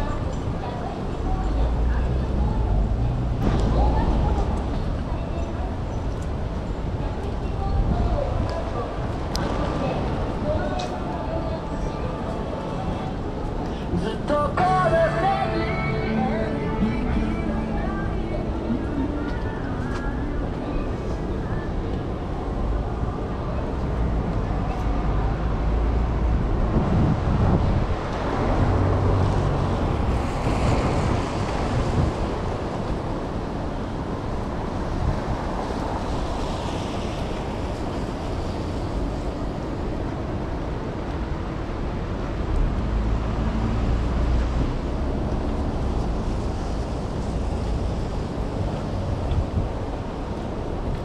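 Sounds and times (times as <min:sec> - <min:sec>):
rain on wet street: 0:00.1 - 0:14.2, 0:21.2 - 0:51.0
wind buffeting microphone: 0:26.1 - 0:42.9.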